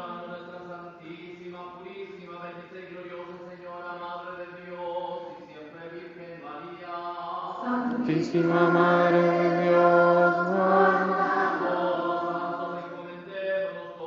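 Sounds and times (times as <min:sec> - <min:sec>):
male voice chanting: 0:06.7 - 0:14.0.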